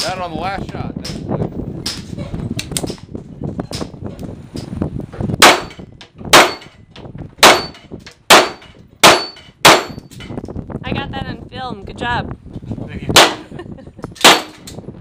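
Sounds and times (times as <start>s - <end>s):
pistol shots: 5.4s - 5.7s, 6.3s - 6.7s, 7.4s - 10.0s, 14.2s - 14.6s
steel plate ringing: 7.4s - 10.2s.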